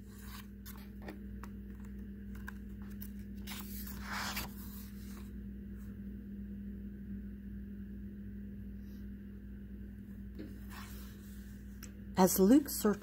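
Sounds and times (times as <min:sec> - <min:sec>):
paper page rustling: 0:00.0 - 0:05.4
steady low hum: 0:00.0 - 0:13.0.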